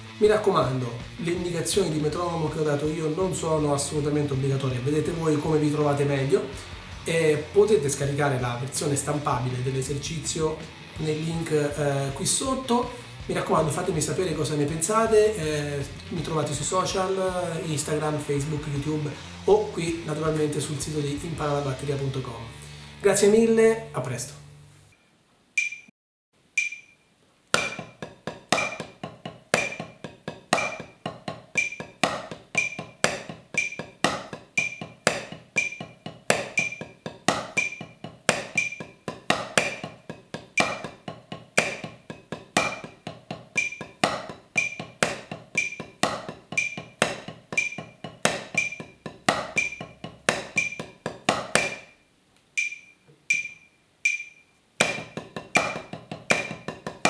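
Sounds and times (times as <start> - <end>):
drumsticks on practice pad: 25.6 - 25.9, 26.5 - 57.0
metronome click: 25.6 - 25.9, 26.6 - 27.0, 31.6 - 32.0, 32.6 - 34.0, 34.6 - 35.0, 35.6 - 36.9, 37.5 - 39.0, 40.6 - 40.9, 43.6 - 44.0, 44.6 - 45.0, 45.6 - 46.0, 46.6 - 47.0, 47.6 - 49.0, 49.6 - 50.9, 52.6 - 54.5.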